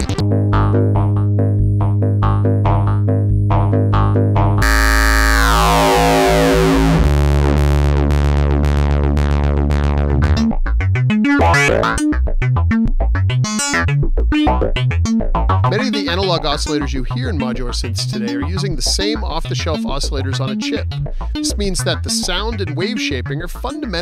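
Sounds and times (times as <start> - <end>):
buzzy synth tone sweeping down: 4.6 - 10.4, 11.3 - 12.0
synthesizer music: 4.6 - 10.5, 11.2 - 12.1.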